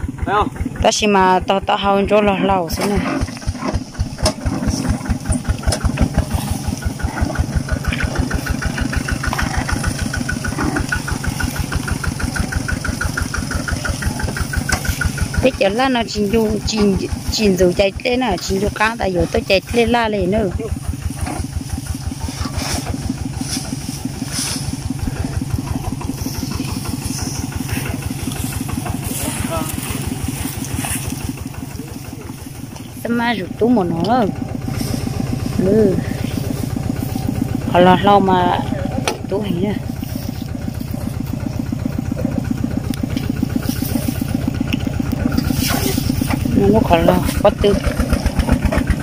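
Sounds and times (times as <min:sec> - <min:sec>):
small engine chugging: 0:00.0 - 0:49.0.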